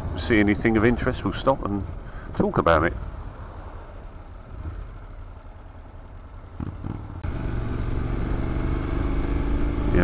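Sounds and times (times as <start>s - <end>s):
motorcycle engine running: 3.8s - 10.0s.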